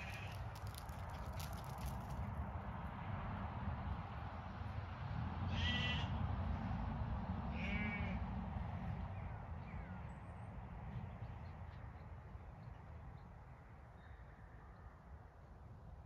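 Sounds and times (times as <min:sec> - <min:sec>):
sheep bleating: 0:05.5 - 0:06.1.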